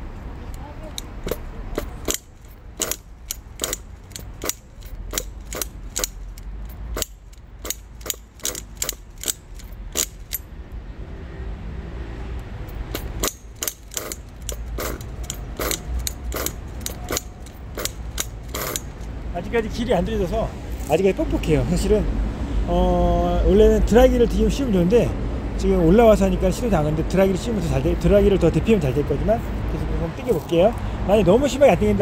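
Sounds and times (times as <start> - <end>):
engine turning over: 0.9 - 10.4, 12.7 - 19.1
pull-starter ratcheting click: 0.9 - 10.4, 12.7 - 19.1.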